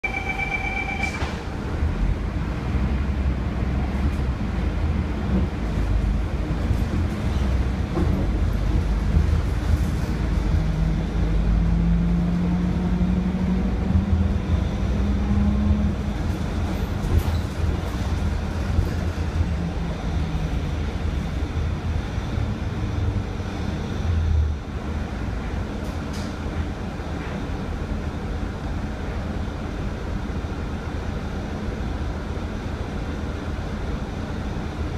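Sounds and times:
rising whine: 0:00.0 - 0:01.4
bus diesel engine rumble: 0:00.0 - 0:34.9.

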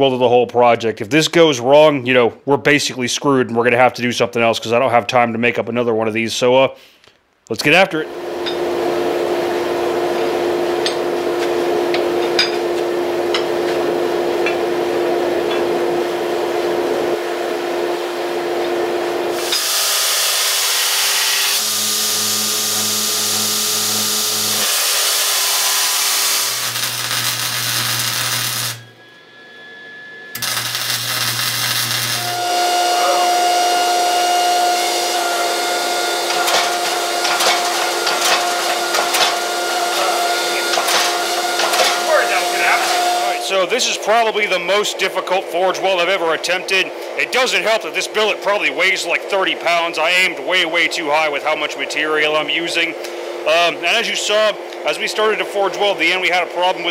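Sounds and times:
forging press machine hum: 0:08.1 - 0:44.3.

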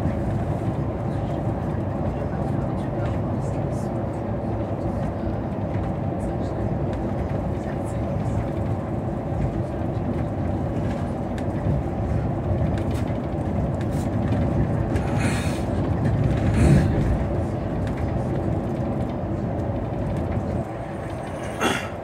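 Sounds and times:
bus engine drone: 0:00.0 - 0:22.0.

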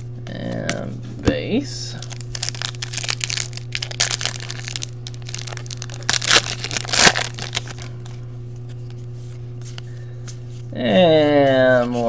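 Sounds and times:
wrapper ripping: 0:02.0 - 0:07.9
wrapper crinkling: 0:02.0 - 0:08.0.

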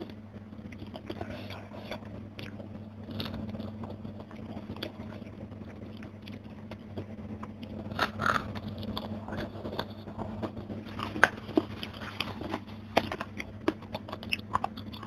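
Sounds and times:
chewing and crunching: 0:00.0 - 0:15.0.

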